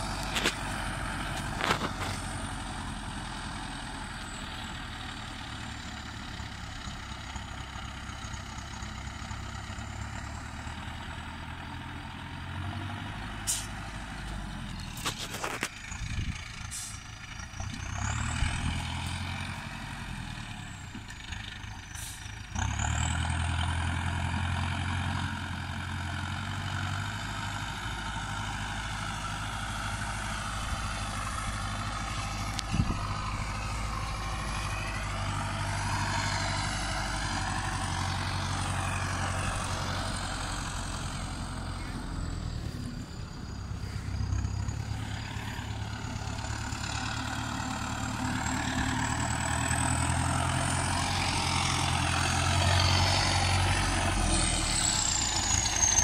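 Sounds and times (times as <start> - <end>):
tractor diesel engine revving: 0.0 - 56.0.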